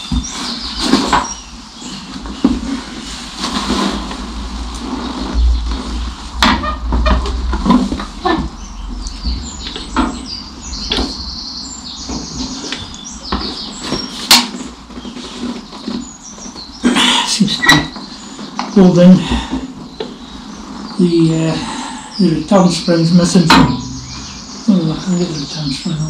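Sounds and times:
high squeaking: 5.3s - 14.4s.

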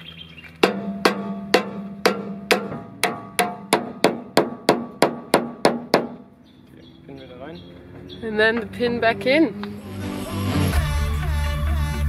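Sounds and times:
hammer striking steel: 0.6s - 6.2s.

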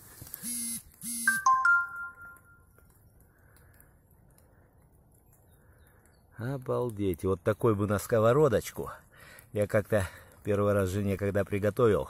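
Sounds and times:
phone vibration buzzes: 0.4s - 1.4s
two-note electronic chime: 1.3s - 2.6s.

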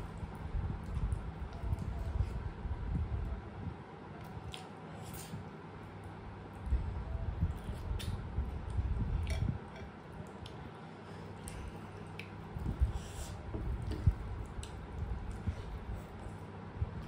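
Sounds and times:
wet chewing and squishing: 13.8s - 16.4s.

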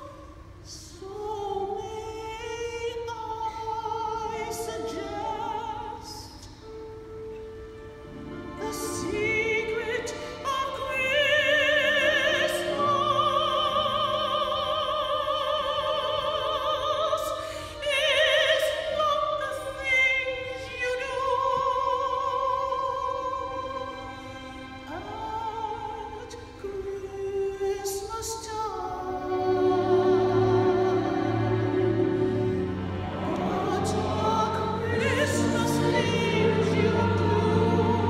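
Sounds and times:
operatic soprano singing: 0.0s - 38.0s
small orchestra playing: 1.2s - 38.0s.

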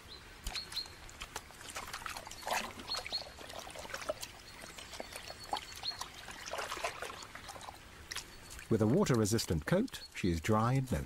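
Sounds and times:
water splashing and trickling: 0.0s - 11.0s.

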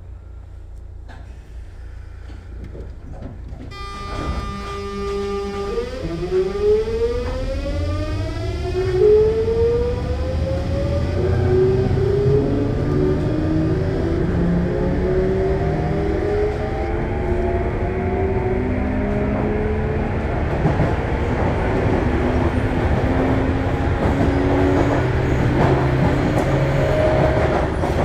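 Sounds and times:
low train running rumble: 0.0s - 28.0s
electric train motors whining: 3.7s - 14.4s.

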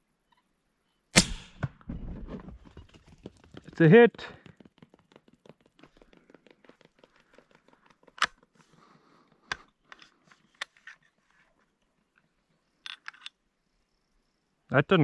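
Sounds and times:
rifle handling clicks and knocks: 6.7s - 8.6s, 12.8s - 13.4s.

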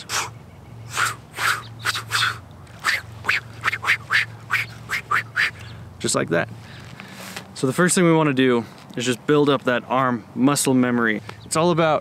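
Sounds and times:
short whooshing swishes: 0.9s - 5.6s.

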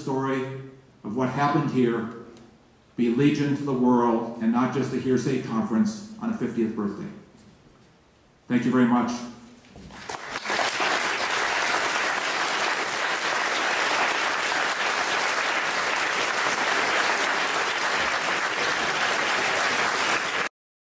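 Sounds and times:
large audience applauding: 9.9s - 20.5s.

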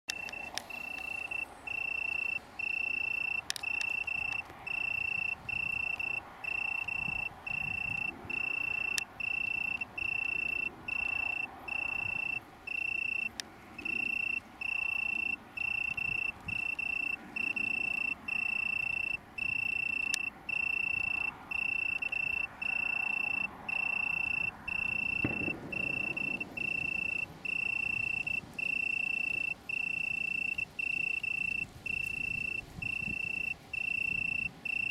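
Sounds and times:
faint clicks: 0.1s - 7.2s, 7.8s - 21.3s
tree cricket trilling: 0.1s - 34.9s.

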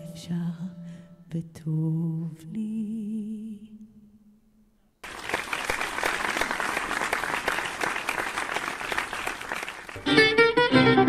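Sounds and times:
audience applauding: 5.0s - 10.5s
guitar and string music: 9.9s - 11.0s.

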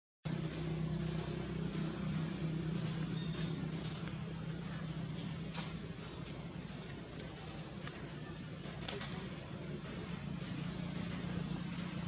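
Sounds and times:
low motor hum: 0.3s - 12.0s
bird chirps: 3.0s - 8.3s.

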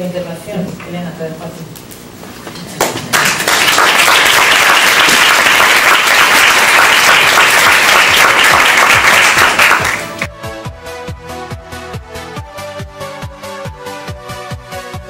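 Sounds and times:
audience applause: 2.8s - 10.3s.

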